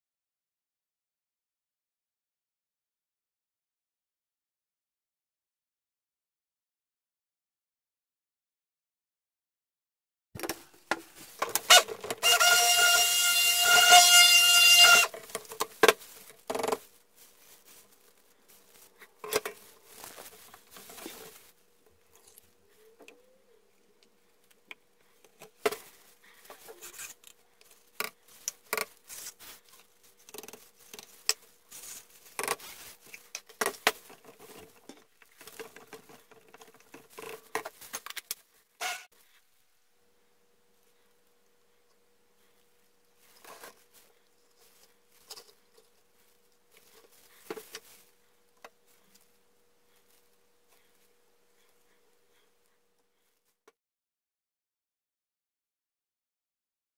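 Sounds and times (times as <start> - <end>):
stick blender running: 11.8 - 15.2.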